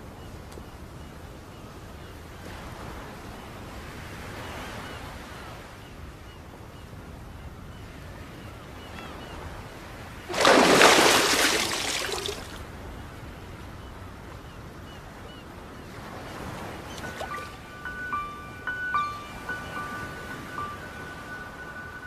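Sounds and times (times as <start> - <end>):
sea surf on a beach: 0.0 - 22.0
faint high chirps: 16.9 - 22.0.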